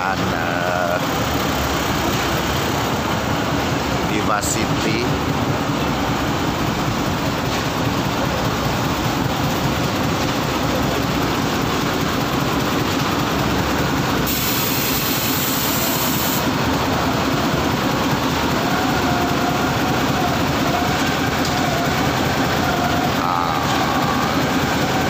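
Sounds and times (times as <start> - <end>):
heavy diesel machinery rumble: 0.0 - 25.0
hiss: 14.3 - 16.4.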